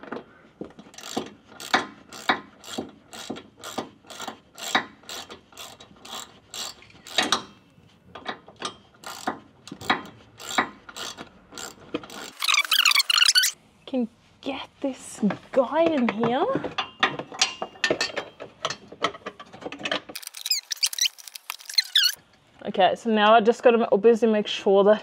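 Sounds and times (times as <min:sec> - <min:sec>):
ratchet wrench clicking: 0:01.0 - 0:07.5, 0:09.0 - 0:13.6.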